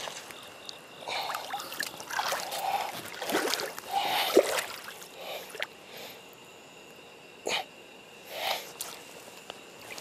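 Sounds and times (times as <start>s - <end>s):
water splashing and sloshing: 0.0s - 5.7s.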